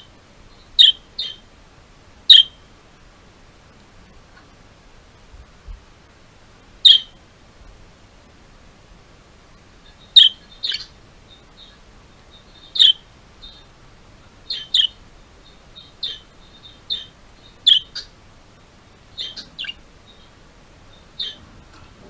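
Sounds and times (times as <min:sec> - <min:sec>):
budgerigars chirping: 0:00.6 - 0:01.4, 0:02.3 - 0:02.6, 0:06.8 - 0:07.2, 0:09.8 - 0:13.7, 0:14.5 - 0:18.2, 0:19.1 - 0:21.5.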